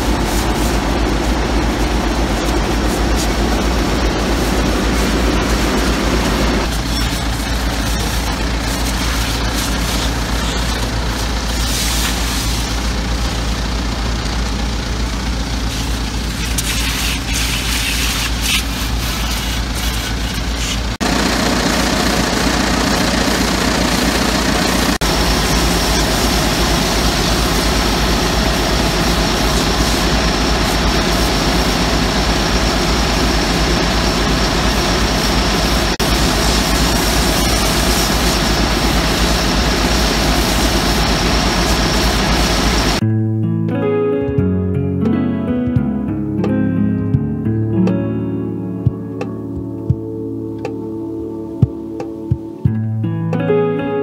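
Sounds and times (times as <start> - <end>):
pressure washer spray hissing: 0.0 - 13.3, 15.7 - 43.0
engine droning: 0.0 - 43.0.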